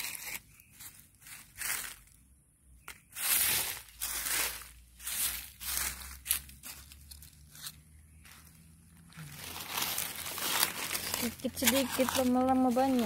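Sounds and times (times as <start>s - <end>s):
hand raking dry leaves: 3.1s - 7.8s, 9.1s - 13.0s.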